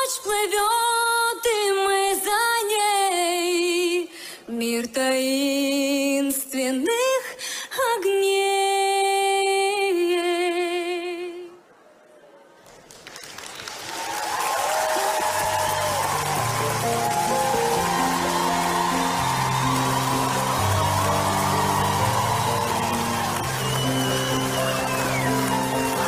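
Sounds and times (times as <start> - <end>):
woman singing a cappella: 0.0 - 11.6
audience applause: 12.6 - 26.0.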